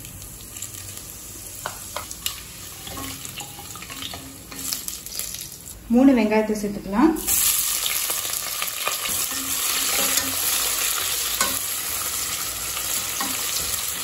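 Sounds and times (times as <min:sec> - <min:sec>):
onions sizzling in oil: 0:00.0 - 0:05.8, 0:07.2 - 0:14.0.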